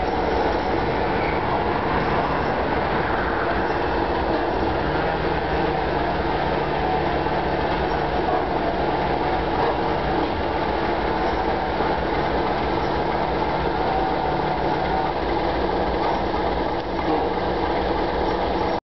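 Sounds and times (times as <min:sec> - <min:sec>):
diesel locomotive engine rumble: 0:00.0 - 0:18.8
rail vehicles rolling: 0:00.0 - 0:18.8.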